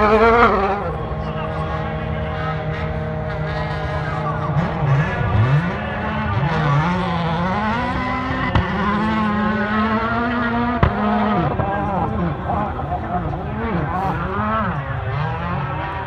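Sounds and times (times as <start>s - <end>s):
rally car engines revving: 0.0s - 16.0s.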